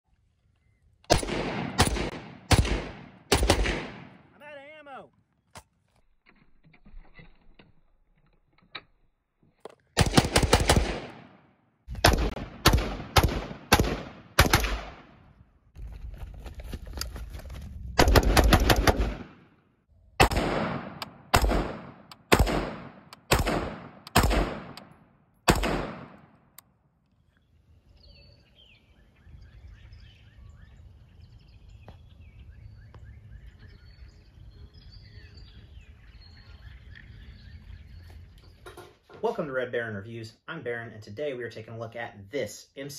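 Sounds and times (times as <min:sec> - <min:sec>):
rifle shots: 0:01.1 - 0:04.3, 0:10.0 - 0:15.2, 0:18.0 - 0:19.6, 0:20.2 - 0:26.3
faint bird chirps: 0:27.1 - 0:39.2.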